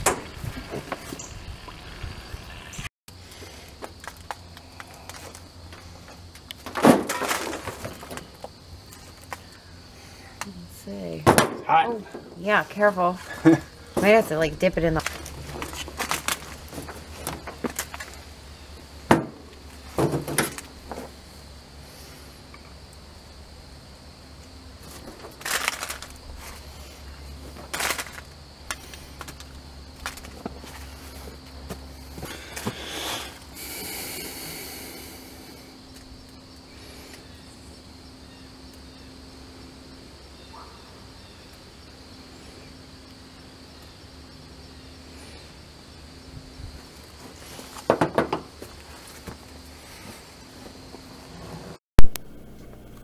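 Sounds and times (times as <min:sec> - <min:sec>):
steady low hum: 0:48.8 - 0:53.0.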